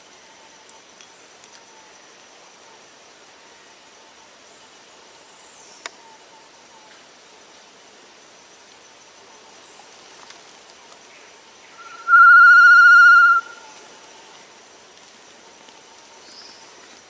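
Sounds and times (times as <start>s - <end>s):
bird quavering whistle call: 11.8s - 13.7s.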